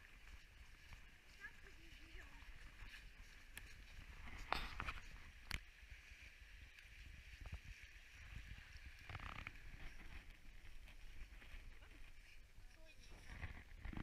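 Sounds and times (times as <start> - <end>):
footsteps crunching in snow: 0.0 - 5.3
wind rumble on microphone: 6.5 - 14.0.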